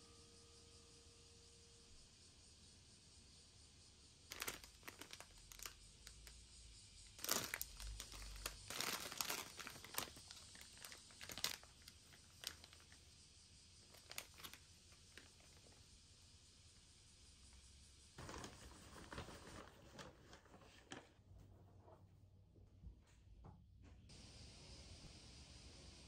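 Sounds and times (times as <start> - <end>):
plastic packaging crinkling: 4.3 - 6.3, 7.1 - 13.0, 13.9 - 15.8, 18.2 - 21.1.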